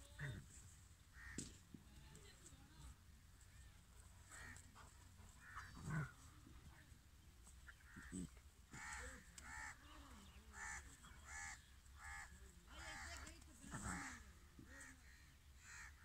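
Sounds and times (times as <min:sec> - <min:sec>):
dogs growling and snarling: 0:04.7 - 0:06.3.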